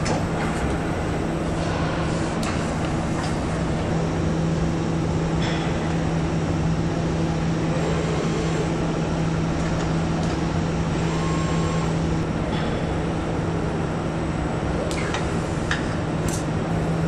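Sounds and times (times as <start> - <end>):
assembly-line machinery drone: 7.0 - 12.3.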